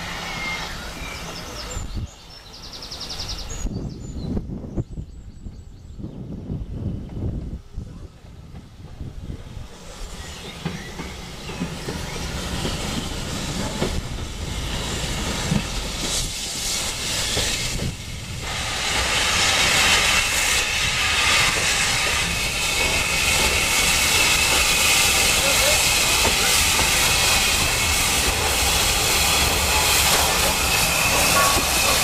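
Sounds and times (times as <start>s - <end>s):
steam hissing: 0.0s - 3.5s, 8.4s - 32.0s
train wheels rolling: 8.2s - 32.0s.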